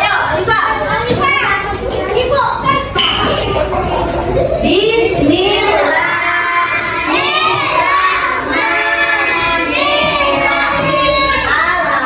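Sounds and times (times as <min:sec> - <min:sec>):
children singing in unison: 0:05.2 - 0:12.0.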